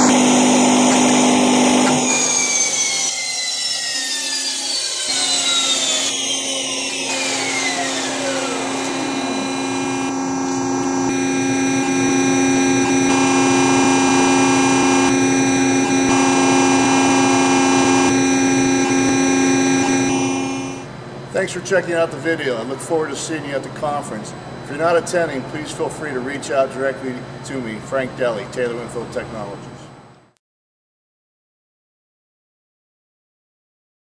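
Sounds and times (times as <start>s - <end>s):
machine whine falling in pitch: 0.0s - 21.0s
machine hum with held tones: 0.0s - 21.3s.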